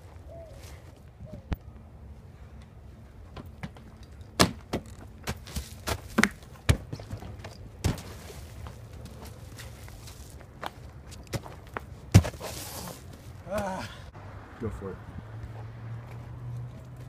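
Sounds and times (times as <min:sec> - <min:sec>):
footsteps: 0:02.5 - 0:13.4
landing in wood chips: 0:04.7 - 0:13.2
thuds and knocks on wood: 0:12.1 - 0:12.4.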